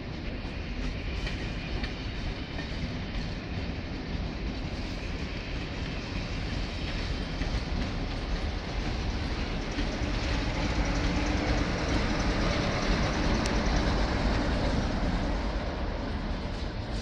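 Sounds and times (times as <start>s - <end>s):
train wheels clattering on track: 0.0s - 17.0s.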